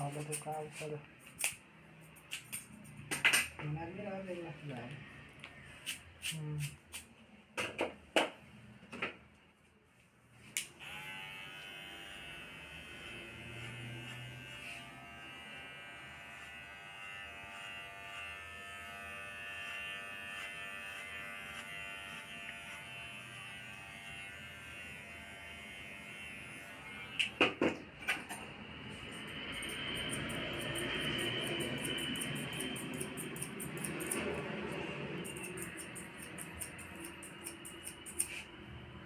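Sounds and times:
electric hair clipper buzzing: 10.6 - 27.6, 29.2 - 34.5
hair clipper clicks: 27.2 - 27.4.

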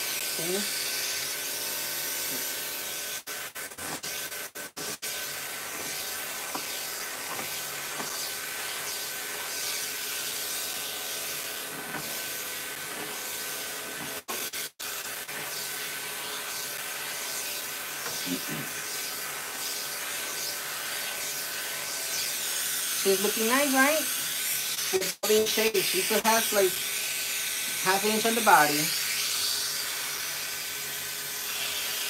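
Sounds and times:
pet clippers whining: 0.0 - 32.0
vacuum suction hiss: 24.9 - 29.6.

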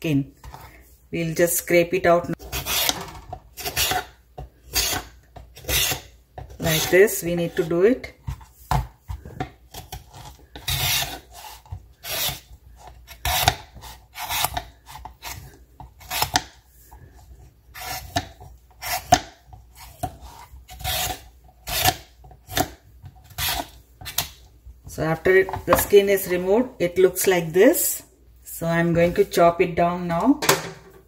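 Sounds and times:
peeler rasping on rind: 9.9 - 16.4, 17.7 - 19.2, 19.8 - 22.0.

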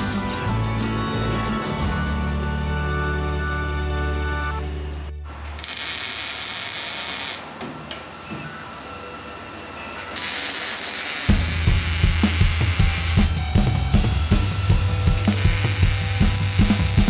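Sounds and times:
background music: 0.0 - 5.3, 8.3 - 17.0
welding arc sizzling: 5.4 - 7.6, 10.0 - 13.4, 15.2 - 17.0
drum beat: 11.3 - 17.0.

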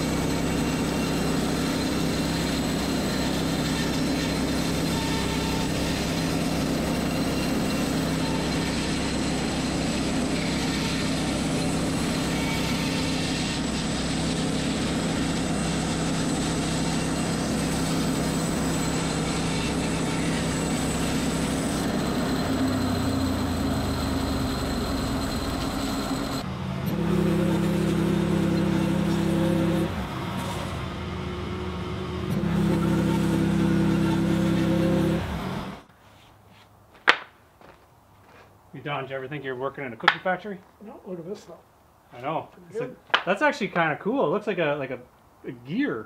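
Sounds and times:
engine hum: 0.0 - 35.9
sawmill engine under load: 0.0 - 35.9.

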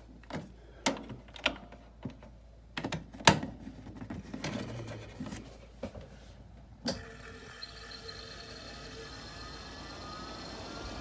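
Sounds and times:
fan motor humming: 6.9 - 11.0.

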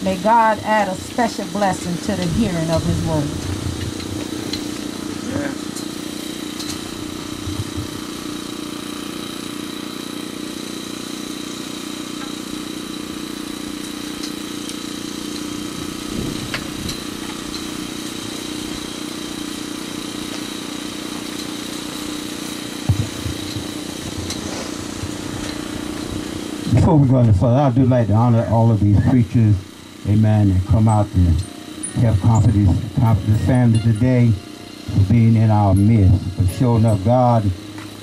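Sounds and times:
engine idling: 0.0 - 38.0
soft low thumps: 22.8 - 26.9.

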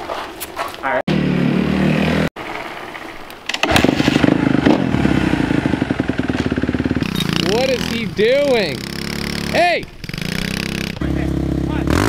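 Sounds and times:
dirt bike engine running: 3.6 - 12.0.

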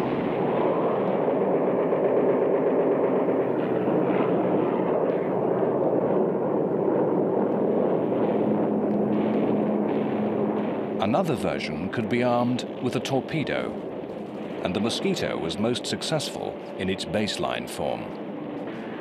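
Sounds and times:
aircraft engine drone: 0.0 - 19.0
machine-gun and cannon fire: 7.8 - 15.4.

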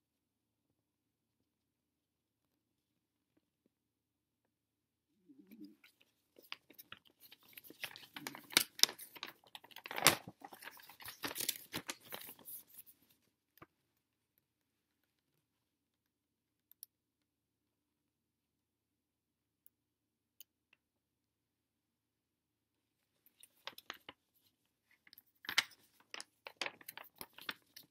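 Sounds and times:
paper pages rustling: 5.8 - 13.2, 23.3 - 27.9.

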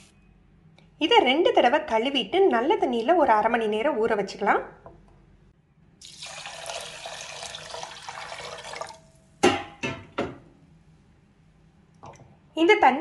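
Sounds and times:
water running into a bowl: 6.0 - 9.1.

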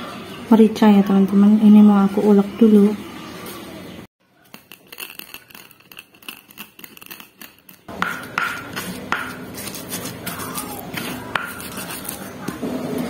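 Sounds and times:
pestle scraping paste: 4.5 - 13.0
stone-on-stone strikes: 7.9 - 9.4.

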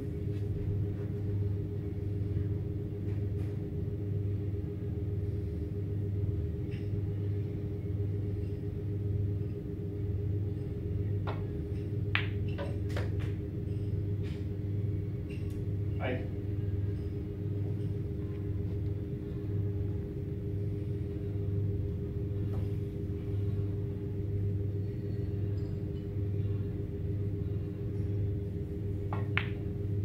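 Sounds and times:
steady low hum: 0.0 - 30.0
snooker balls clicking: 11.2 - 13.4, 29.0 - 29.8.

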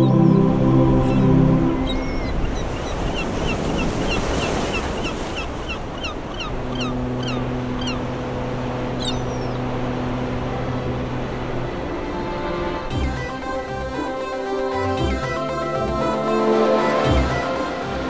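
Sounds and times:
bird chirping: 0.0 - 8.1, 9.0 - 9.6
sea wash: 0.0 - 18.0
low steady hum: 6.1 - 14.4.

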